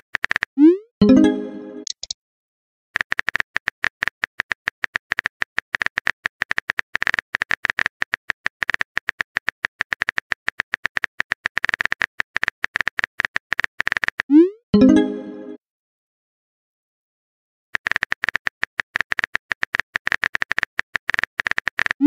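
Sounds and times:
phone keyboard typing clicks: 1.8 - 2.2, 3.0 - 14.3, 17.8 - 22.0.

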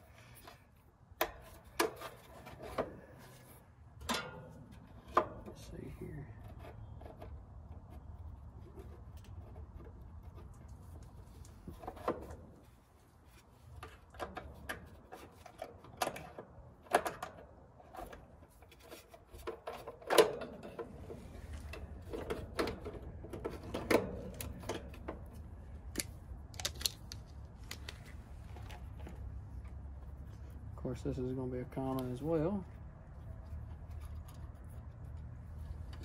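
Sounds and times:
clicks and knocks of tools: 13.7 - 29.8.

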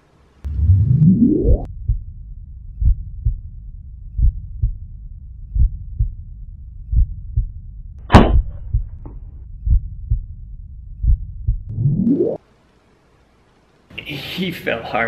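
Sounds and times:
heartbeat thumps: 0.5 - 3.5, 4.1 - 4.9, 5.5 - 6.2, 6.8 - 10.4, 11.0 - 11.8
suppressed pistol shot: 8.1 - 8.6.

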